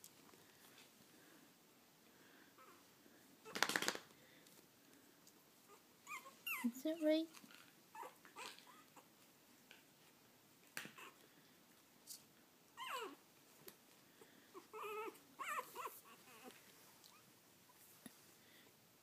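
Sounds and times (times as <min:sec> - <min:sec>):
puppies whimpering: 0:06.0 - 0:06.7, 0:12.8 - 0:13.2, 0:14.6 - 0:16.6.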